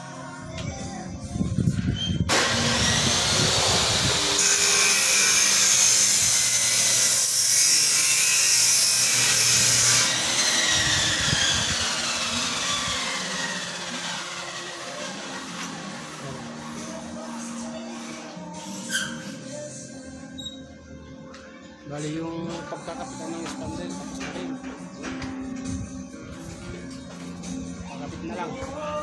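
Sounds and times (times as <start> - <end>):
electric cutting tool whining: 2.3 - 16.7.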